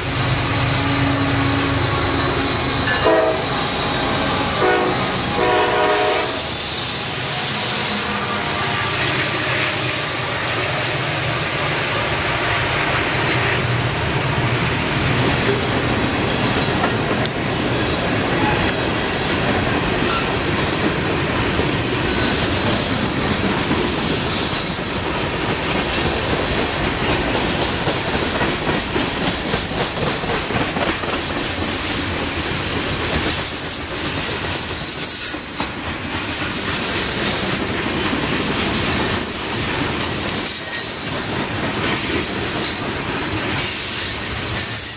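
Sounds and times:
diesel locomotives droning: 0:00.0 - 0:34.5
train wheels clicking over rail: 0:18.4 - 0:44.9
steel wheel squeal: 0:43.6 - 0:44.9.

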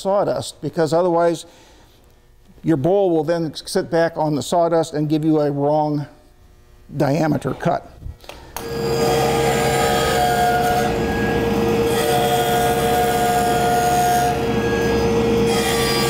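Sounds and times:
high squealing tone: 0:08.6 - 0:16.0
table saw cutting wood: 0:08.6 - 0:16.0.

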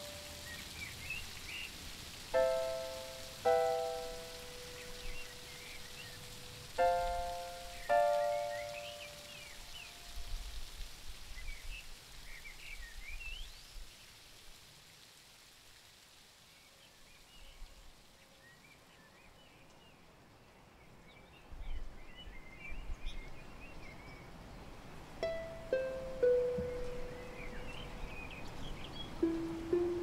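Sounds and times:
rain-like hiss: 0:00.0 - 0:30.0
plucked string notes: 0:02.4 - 0:04.3, 0:25.2 - 0:27.8, 0:29.2 - 0:30.0
bird chirps: 0:03.6 - 0:06.2, 0:07.0 - 0:09.9, 0:25.3 - 0:30.0.

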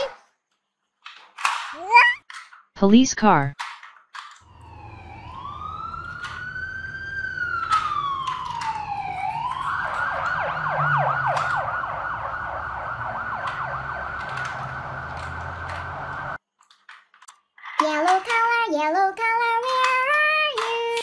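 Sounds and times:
toy electronic siren: 0:04.5 - 0:16.4
plastic toy clicks: 0:07.6 - 0:08.8, 0:11.3 - 0:11.6, 0:16.6 - 0:18.6, 0:19.6 - 0:21.0.

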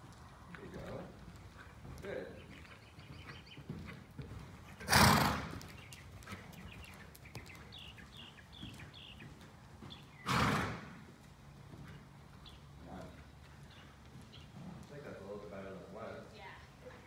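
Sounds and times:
hoofbeats on sand: 0:00.6 - 0:15.8
bird chirps: 0:02.4 - 0:03.7, 0:05.7 - 0:10.3.

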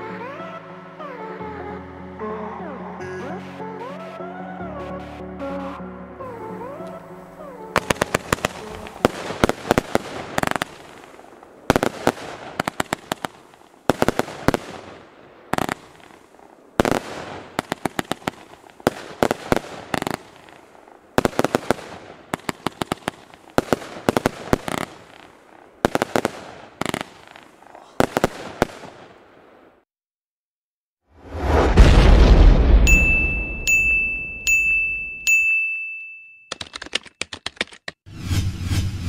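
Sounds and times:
firework effects hissing: 0:07.8 - 0:29.0
firework sharp bangs: 0:07.8 - 0:29.8.

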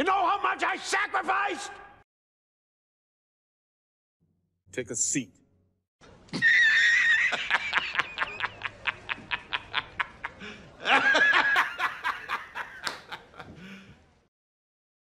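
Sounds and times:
man cackling laughter: 0:06.3 - 0:13.6.

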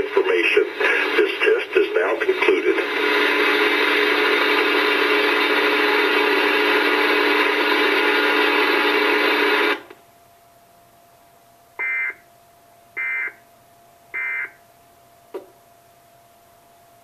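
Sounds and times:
harsh emergency alert tone: 0:11.8 - 0:12.2, 0:13.0 - 0:13.4, 0:14.2 - 0:14.6.

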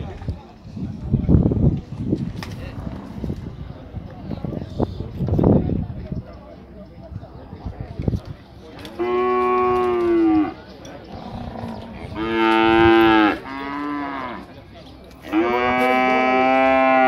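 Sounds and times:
cattle mooing: 0:15.3 - 0:17.0.

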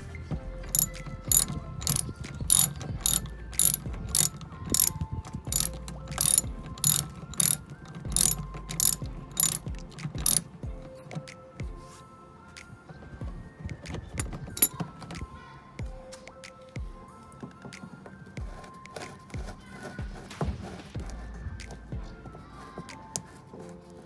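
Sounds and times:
socket ratchet clicking: 0:00.8 - 0:07.6, 0:08.2 - 0:10.4, 0:14.2 - 0:14.7.

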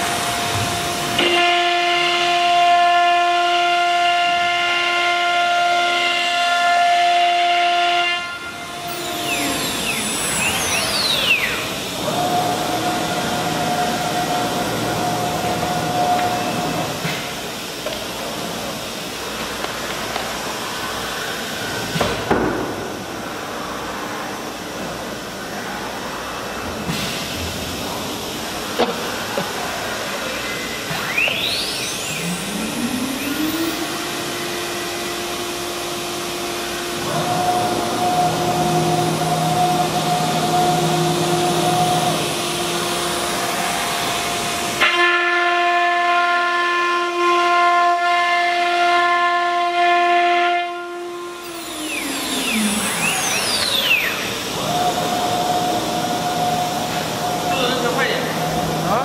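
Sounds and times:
router spindle whine: 0:00.0 - 0:17.0, 0:30.0 - 0:46.1, 0:50.2 - 0:59.0
routing hiss: 0:51.2 - 0:59.0.

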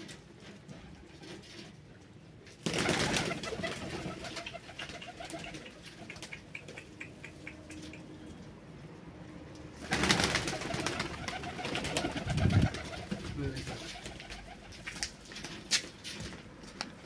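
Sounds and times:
pigeons cooing: 0:03.0 - 0:08.6, 0:09.9 - 0:14.9.

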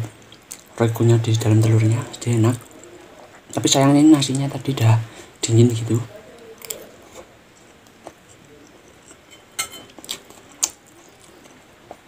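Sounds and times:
quiet chewing: 0:00.0 - 0:00.8, 0:01.6 - 0:03.6, 0:06.1 - 0:12.0.

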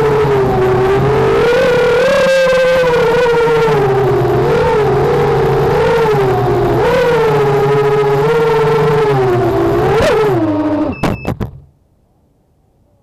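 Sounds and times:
drone motors and propellers whining: 0:00.0 - 0:11.7.

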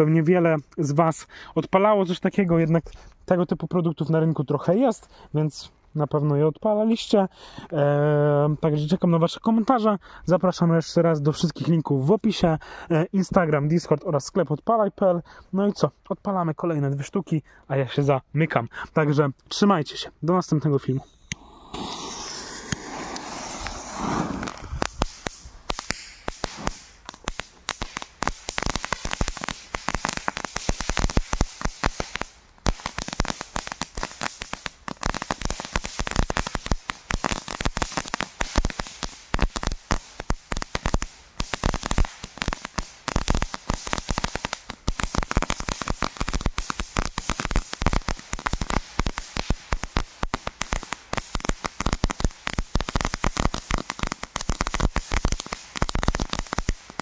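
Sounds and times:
crackling fountain fireworks: 0:21.3 - 0:57.0.

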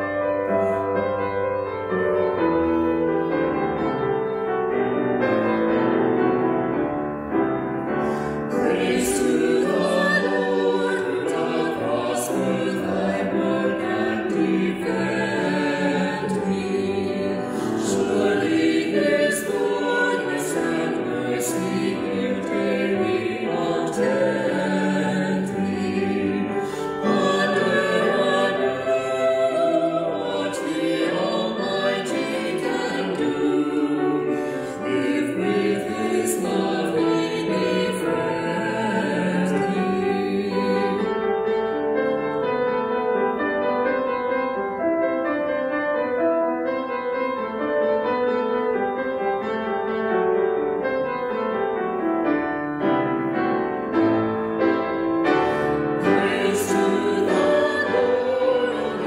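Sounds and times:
vocal trio singing a hymn: 0:07.9 - 0:41.7, 0:53.7 - 0:59.0.

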